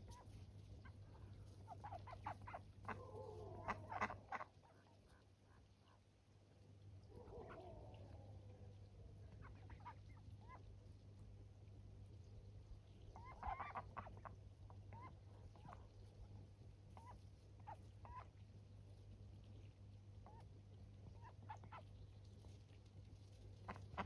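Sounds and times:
ducks quacking: 0.0s - 5.0s, 13.1s - 15.9s, 17.0s - 18.3s, 23.6s - 24.0s.

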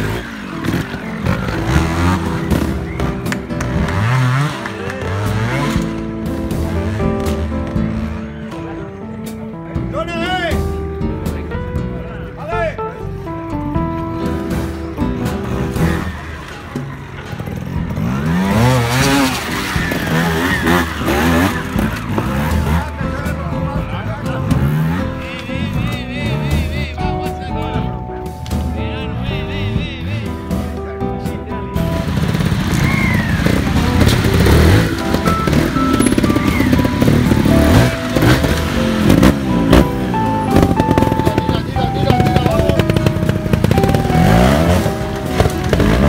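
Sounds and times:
motorcycle engine revving: 0.0s - 8.8s, 14.0s - 27.0s, 31.8s - 46.0s.

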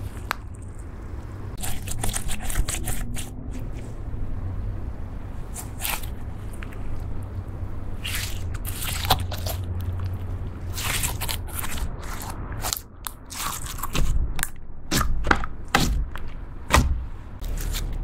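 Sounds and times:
slime squishing: 0.0s - 4.0s, 5.4s - 7.2s, 7.8s - 18.0s
low hum: 0.0s - 13.2s.

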